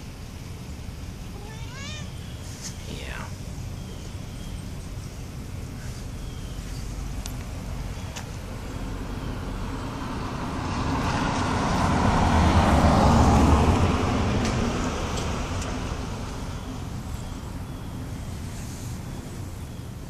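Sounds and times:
vehicle passing by: 5.9 - 19.7.

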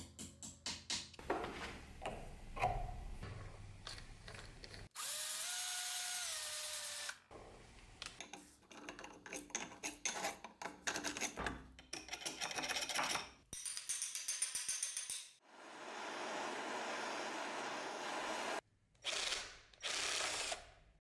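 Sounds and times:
power drill whining: 5.0 - 7.2
screwdriver scraping metal: 8.2 - 13.3.

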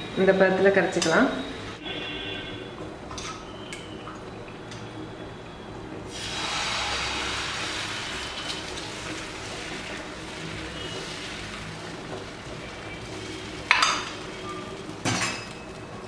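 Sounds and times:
batter sizzling on hot griddle: 6.1 - 15.8.

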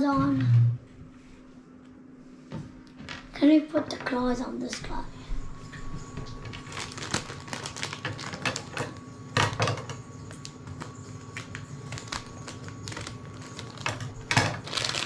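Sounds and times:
wrapper crinkling: 6.4 - 15.0.

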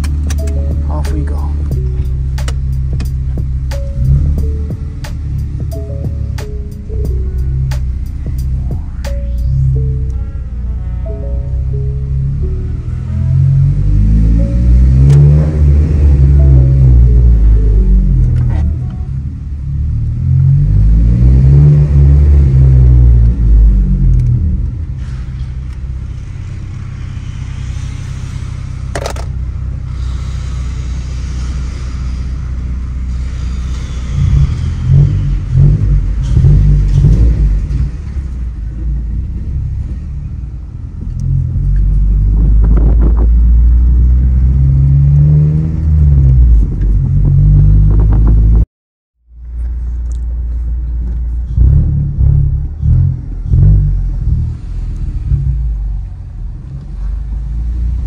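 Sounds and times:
car engine revving: 0.0 - 48.6, 49.5 - 58.0.

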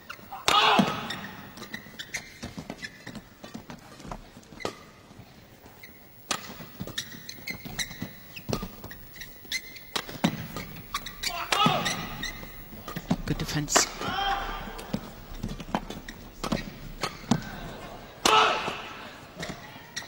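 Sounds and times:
shoes squeaking on court floor: 0.0 - 20.0
rackets hitting shuttlecock: 8.4 - 19.6.

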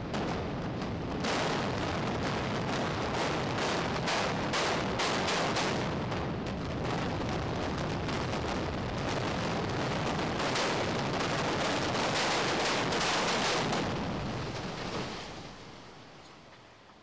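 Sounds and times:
rumble of collapsing concrete: 5.9 - 15.8.

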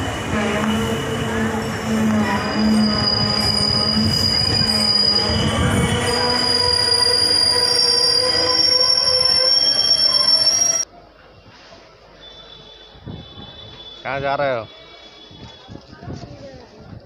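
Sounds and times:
low train rumble: 0.0 - 12.1
train wheels squealing: 0.8 - 10.8.

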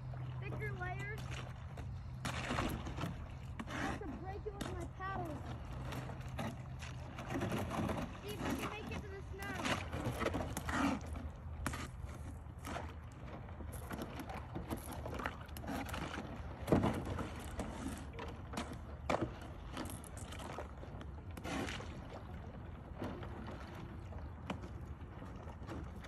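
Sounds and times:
low steady rumble: 0.0 - 15.6
paddle splashing in water: 0.0 - 26.0.

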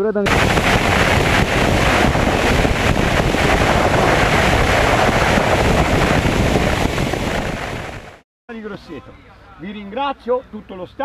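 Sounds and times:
plane engine and wheels rumbling: 0.3 - 8.2
wind buffeting microphone: 0.3 - 8.2.

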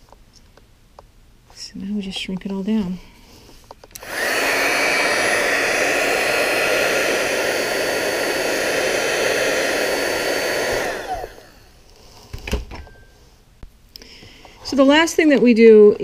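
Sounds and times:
heat gun fan whirring: 3.7 - 12.4.

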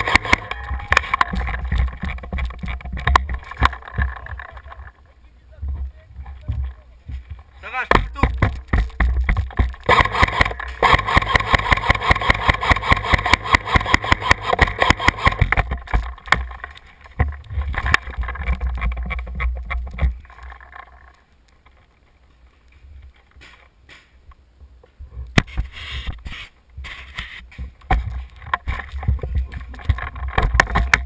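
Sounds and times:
airsoft rifle firing bursts: 0.0 - 0.5, 9.8 - 15.6
steady whine: 0.0 - 22.4
handling and movement noise: 0.0 - 31.0.

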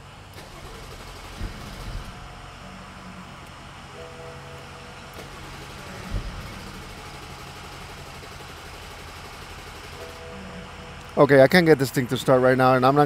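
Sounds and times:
steady low cabin hum: 0.0 - 13.0.

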